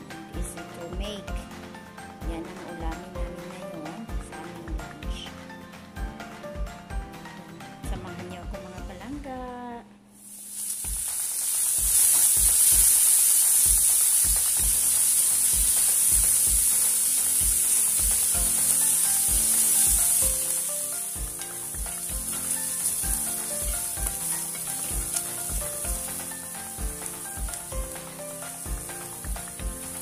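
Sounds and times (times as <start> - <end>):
background music with beat: 0.0 - 9.2, 10.8 - 30.0
onions sizzling in a wok: 10.1 - 30.0.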